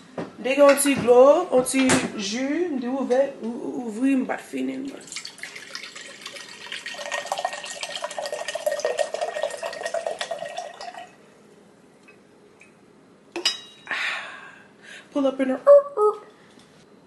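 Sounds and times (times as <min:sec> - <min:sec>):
bubbles fizzing in glass: 0:04.8 - 0:11.2
sparkling water pouring: 0:04.8 - 0:11.2.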